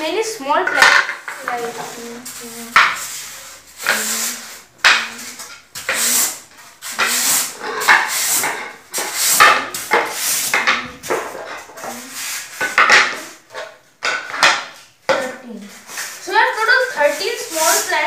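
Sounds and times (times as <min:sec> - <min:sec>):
boards scraping: 0:00.4 - 0:18.0
wooden boards clacking together: 0:04.8 - 0:06.0, 0:06.9 - 0:12.0, 0:12.6 - 0:15.3.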